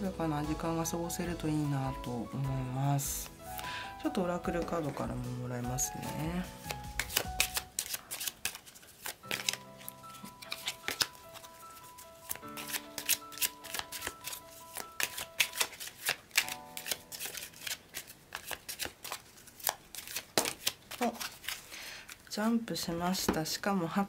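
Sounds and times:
soft background music: 0:00.0 - 0:19.2
cards shuffled by hand: 0:06.1 - 0:22.6.

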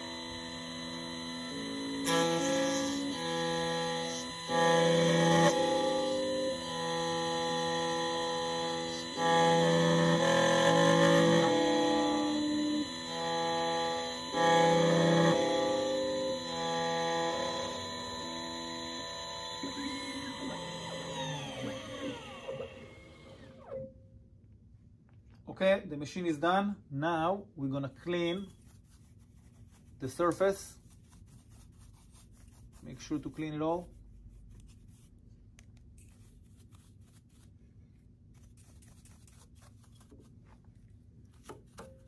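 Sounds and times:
key cutting machine motors whining: 0:00.0 - 0:23.8
brush sweeping metal shavings: 0:28.1 - 0:35.2, 0:36.0 - 0:40.7.

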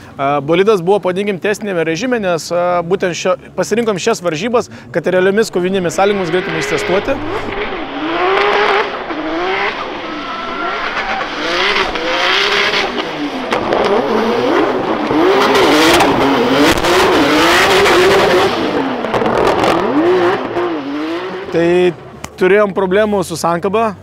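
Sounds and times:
car engine revving: 0:04.7 - 0:22.2
tyres spinning and skidding: 0:05.6 - 0:20.8.

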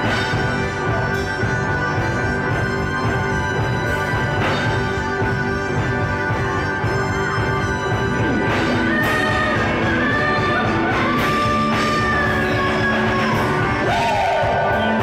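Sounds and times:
drums: 0:00.0 - 0:15.0
electric guitar: 0:00.0 - 0:15.0
live rock band playing: 0:00.0 - 0:15.0
woman singing into microphone: 0:08.7 - 0:14.8.

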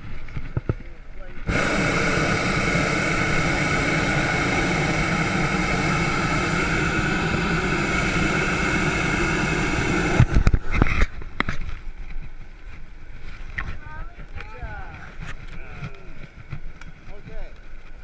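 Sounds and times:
propane burner blasting: 0:01.4 - 0:11.6.

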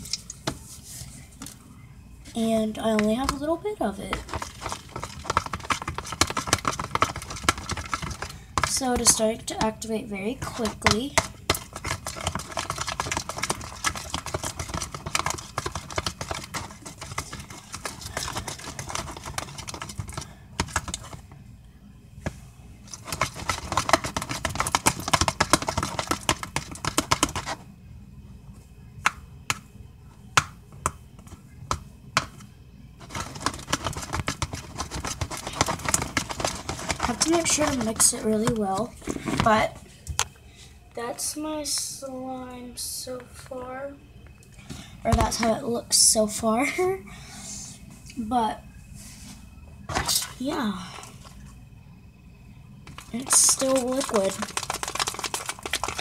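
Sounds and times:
slime squelching in a bowl: 0:02.2 - 0:21.3, 0:22.2 - 0:27.6, 0:29.0 - 0:39.8, 0:52.8 - 0:56.0.

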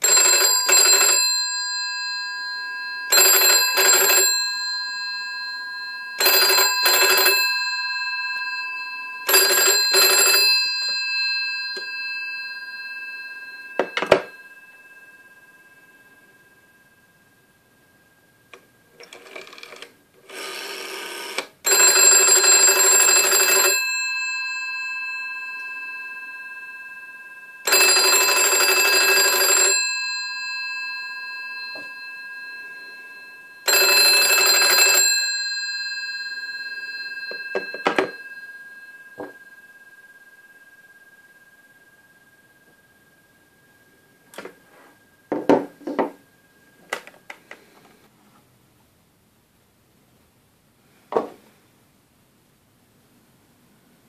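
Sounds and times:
telephone bell ringing: 0:00.0 - 0:17.1, 0:19.0 - 0:42.8.

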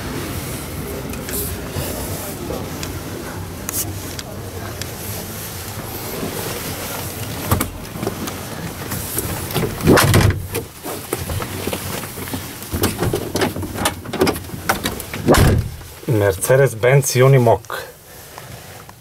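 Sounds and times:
steady background noise: 0:00.0 - 0:19.0
heavy thump of door handle: 0:15.3 - 0:15.9.

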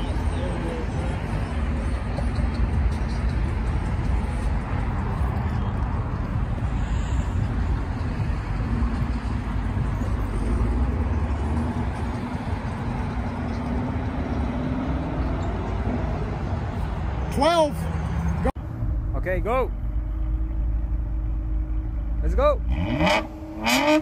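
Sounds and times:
vehicle engines and road noise: 0:00.0 - 0:24.0
engine accelerating: 0:19.7 - 0:24.0.

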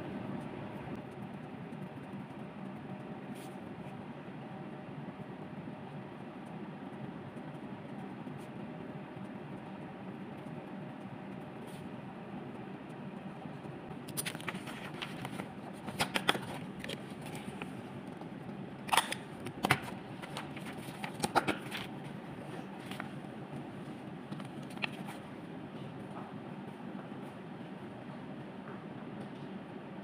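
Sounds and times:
low room hum: 0:00.0 - 0:30.0
paper sheets rustling and crackling: 0:14.1 - 0:17.8, 0:18.9 - 0:23.2.

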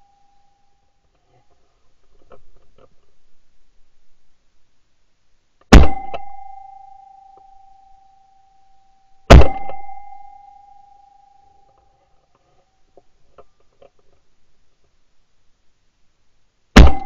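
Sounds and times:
shotgun shots: 0:05.7 - 0:06.2, 0:09.3 - 0:10.0, 0:16.8 - 0:17.0
high ringing tone: 0:05.8 - 0:11.9.

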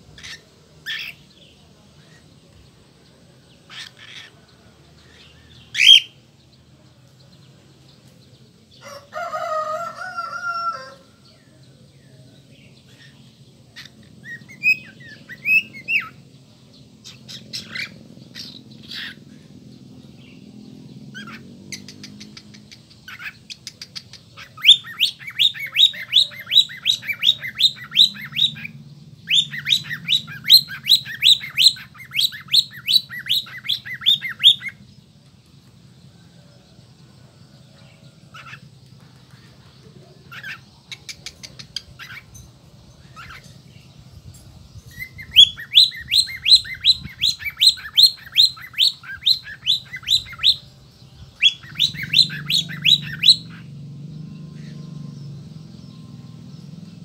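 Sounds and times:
harsh cockatiel call: 0:00.1 - 0:01.3, 0:03.7 - 0:04.4, 0:05.0 - 0:06.2, 0:17.0 - 0:19.4, 0:21.1 - 0:34.8, 0:38.3 - 0:38.6, 0:40.3 - 0:42.3, 0:45.0 - 0:50.7, 0:51.4 - 0:53.7
fast runs of rising chirps: 0:12.9 - 0:57.0
cockatiel chirping: 0:23.1 - 0:28.7, 0:29.3 - 0:34.8, 0:45.0 - 0:50.6, 0:51.4 - 0:53.6.

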